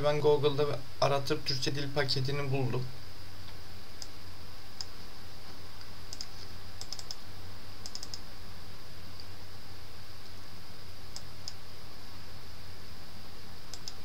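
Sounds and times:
low electrical hum and hiss: 0.0s - 14.0s
computer mouse clicking: 6.1s - 7.2s, 7.8s - 8.2s, 13.7s - 14.0s.

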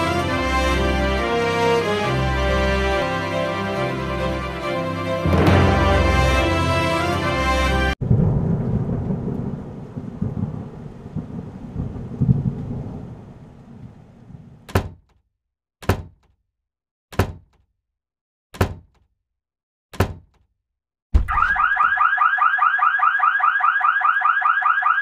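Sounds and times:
deep rumbling boom: 8.0s - 14.0s.

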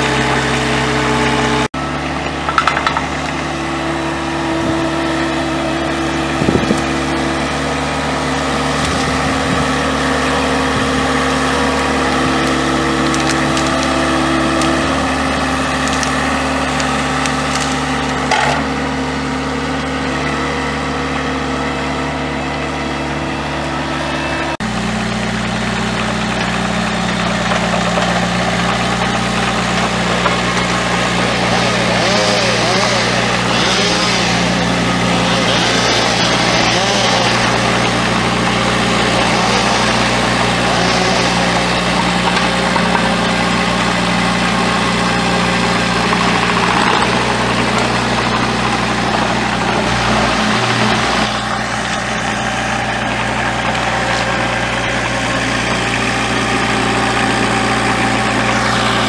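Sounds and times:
skid steer engine running: 0.0s - 59.0s
branches cracking and snapping: 6.4s - 18.8s, 25.4s - 59.0s.

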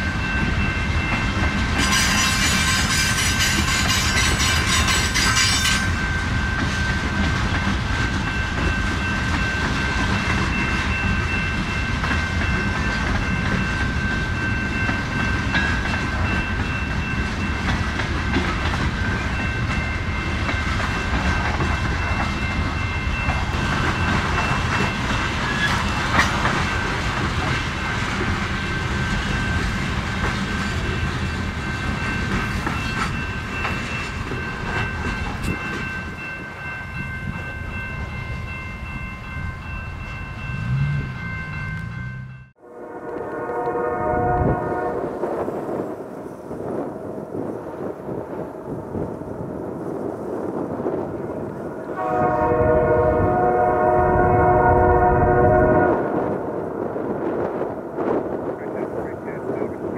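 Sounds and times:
freight train wheels clicking: 0.0s - 37.4s
train low rumble: 0.0s - 59.9s.

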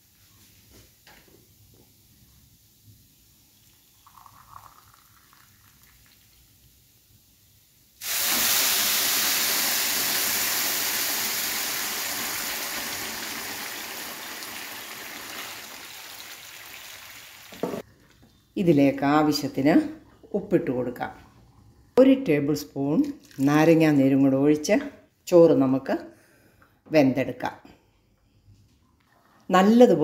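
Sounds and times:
pan bubbling: 8.0s - 17.8s
water hissing in hot pan: 8.0s - 17.8s.

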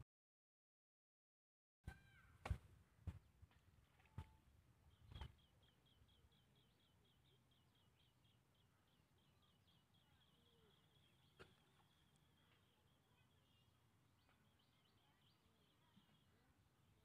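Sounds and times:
bird chirping: 3.9s - 17.0s.

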